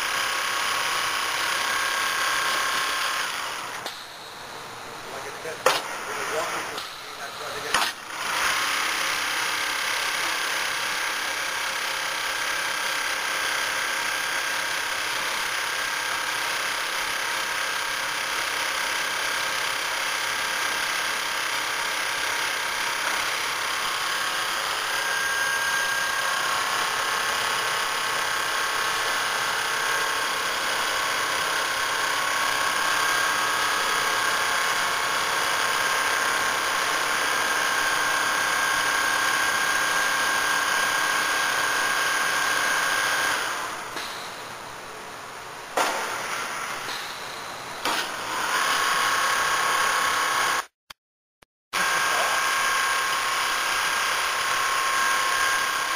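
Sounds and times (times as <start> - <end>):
quilting machine clatter and whir: 0.0 - 44.8, 51.8 - 55.9
thin high whine: 3.6 - 7.9, 45.8 - 48.2.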